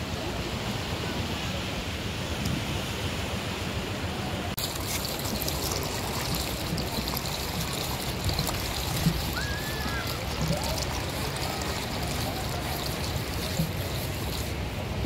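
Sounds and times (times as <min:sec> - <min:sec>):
sea waves washing on beach: 0:04.6 - 0:15.0.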